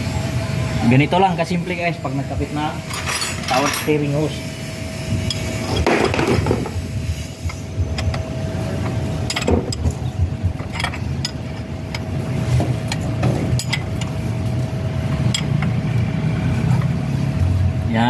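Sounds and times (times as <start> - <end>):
steady low rumble: 4.7 - 18.0.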